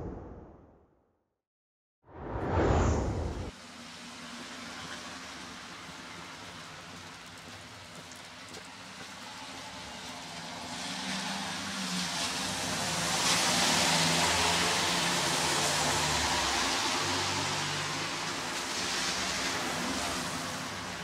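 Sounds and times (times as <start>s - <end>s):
steady rain: 3.6s - 21.0s
tyres hissing on wet asphalt: 3.6s - 21.0s.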